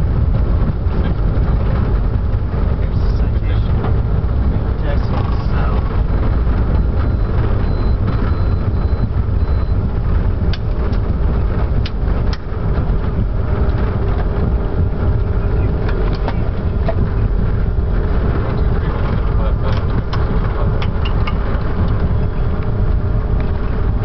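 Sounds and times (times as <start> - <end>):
jet engines low rumble: 0.0 - 24.0
faint high beeping: 6.7 - 9.9.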